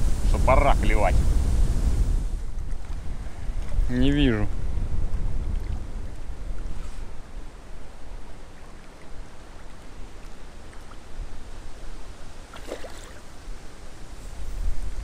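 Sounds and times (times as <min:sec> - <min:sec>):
wind buffeting microphone: 0:00.0 - 0:07.6, 0:13.4 - 0:15.0
faint steady hiss: 0:00.0 - 0:15.0.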